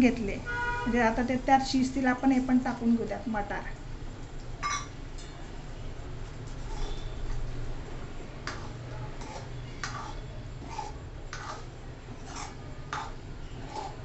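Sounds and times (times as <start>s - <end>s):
spatula scraping a pan: 6.5s - 7.4s, 8.4s - 14.0s.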